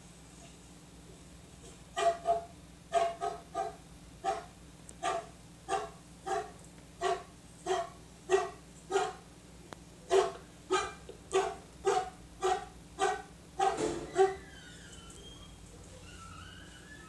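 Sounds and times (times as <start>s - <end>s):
large dog barking: 2.0s - 9.3s, 10.1s - 14.4s.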